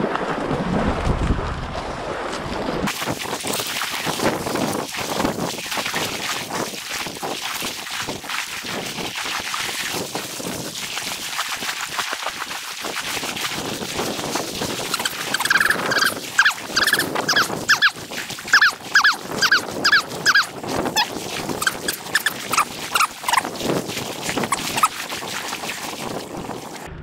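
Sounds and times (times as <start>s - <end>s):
water noise: 0.0s - 27.0s
wind: 0.0s - 27.0s
dog whining: 15.0s - 17.9s, 18.6s - 20.5s.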